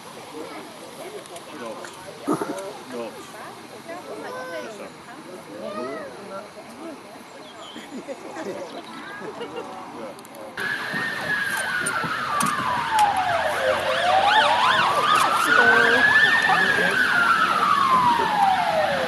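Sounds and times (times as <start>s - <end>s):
fast warbling siren: 10.6s - 19.0s
siren slow wail: 10.6s - 19.0s.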